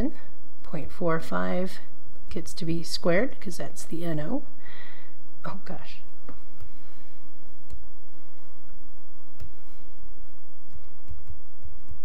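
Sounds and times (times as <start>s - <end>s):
stylus tapping on pen tablet: 10.6s - 12.0s.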